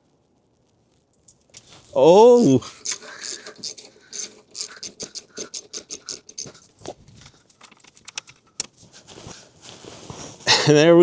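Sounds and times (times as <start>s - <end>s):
ratchet wrench clicking: 2.7s - 6.6s.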